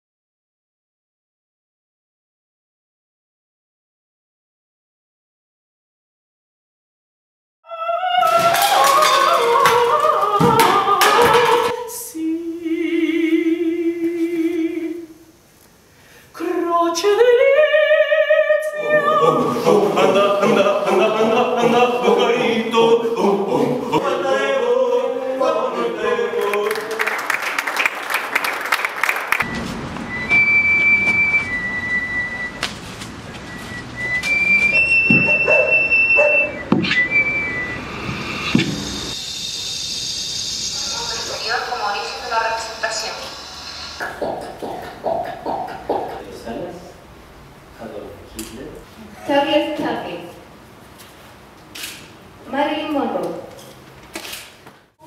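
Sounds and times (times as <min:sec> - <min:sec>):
long whistled notes: 0:29.5 - 0:32.6, 0:33.5 - 0:44.2
wavering sung pitches: 0:33.5 - 0:47.2.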